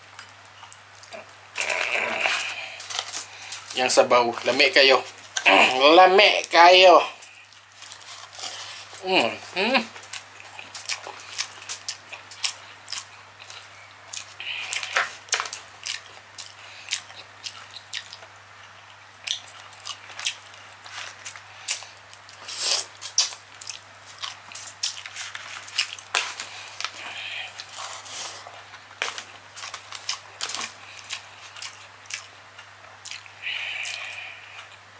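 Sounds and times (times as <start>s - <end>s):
wet chewing and lip smacking: 10.1s - 34.8s.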